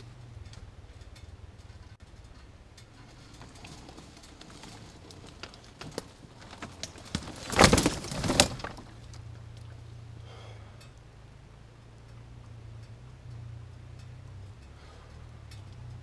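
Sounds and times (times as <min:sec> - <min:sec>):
twigs and dry leaves crackling: 0:00.0 - 0:10.2
low steady hum: 0:00.0 - 0:16.0.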